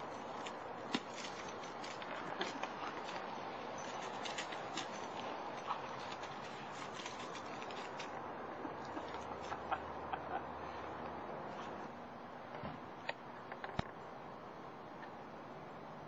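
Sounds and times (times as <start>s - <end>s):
dry leaves crackling under paws: 0.0s - 8.2s.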